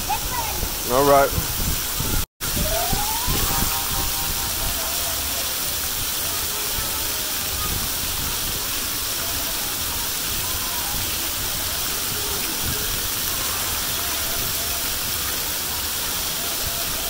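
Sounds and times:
faint children's voices: 0.0s - 0.9s, 2.0s - 17.0s
water rushing down slides: 0.0s - 17.0s.

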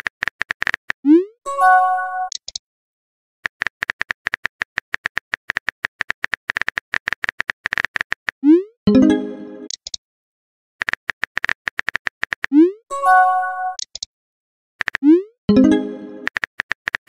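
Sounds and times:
notification tone: 8.5s - 9.7s, 12.6s - 13.8s, 15.5s - 16.3s.

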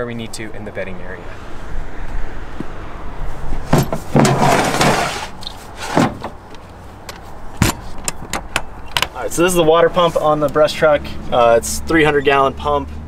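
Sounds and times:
sliding scrape: 3.8s - 6.4s.

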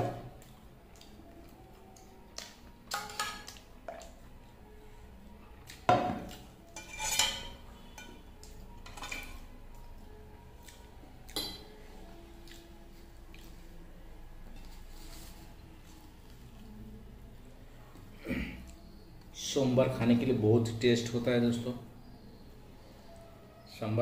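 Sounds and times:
steel pot and plate clinking: 2.9s - 3.6s, 6.8s - 8.2s, 8.8s - 9.4s, 11.4s - 11.6s.

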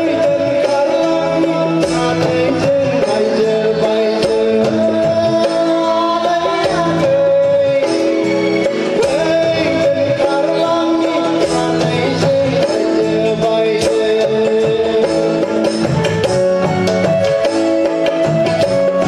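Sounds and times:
person singing: 0.0s - 15.8s
keyboard melody: 0.0s - 19.0s.

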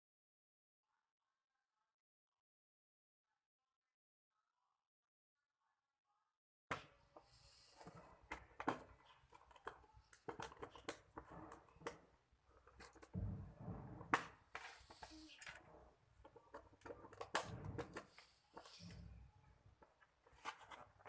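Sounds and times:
hands moving objects on table: 12.6s - 19.2s.

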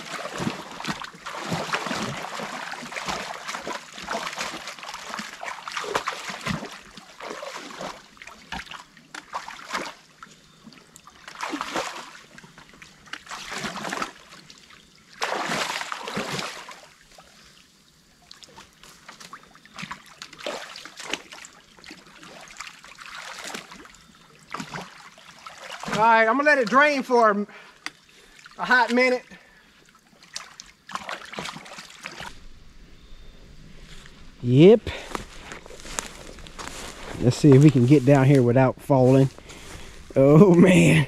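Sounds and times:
water splashing and dripping: 0.0s - 17.4s, 18.1s - 29.2s, 29.8s - 32.6s
water trickling: 0.0s - 41.0s.

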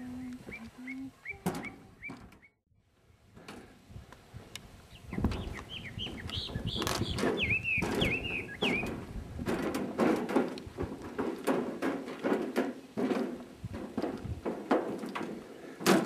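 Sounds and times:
bird chirping and whistling: 0.2s - 2.6s, 5.0s - 8.9s.

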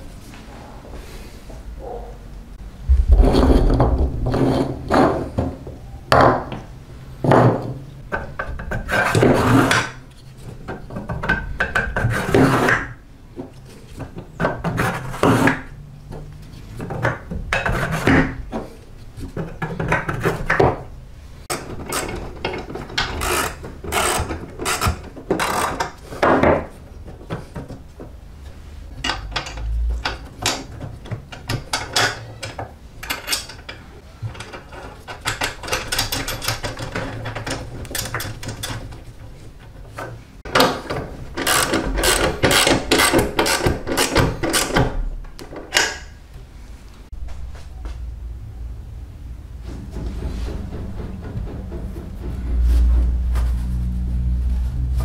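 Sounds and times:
metal parts clicking and tapping: 21.5s - 27.8s, 29.0s - 46.1s.

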